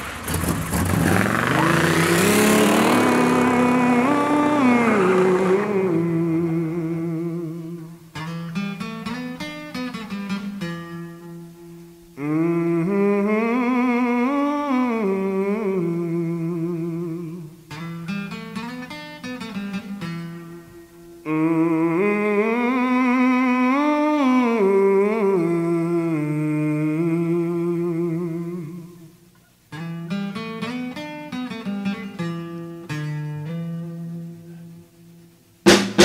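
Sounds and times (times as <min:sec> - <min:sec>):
acoustic guitar plucking: 0:00.0 - 0:36.0.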